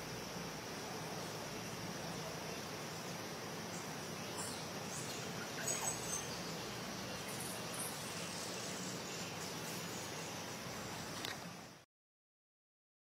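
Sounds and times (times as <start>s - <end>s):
outdoor background hiss: 0.0s - 11.9s
faint bird chirps: 1.2s - 11.8s.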